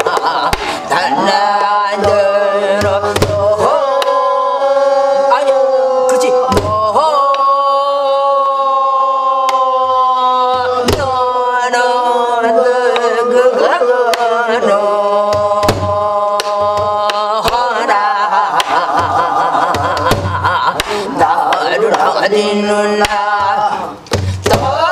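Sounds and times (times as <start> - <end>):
woman singing wordless syllables: 6.0 - 18.4.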